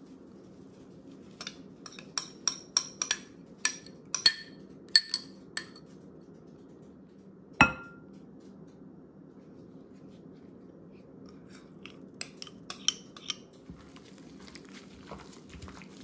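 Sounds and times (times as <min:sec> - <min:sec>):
glass bowl clinking: 0:07.6 - 0:08.0.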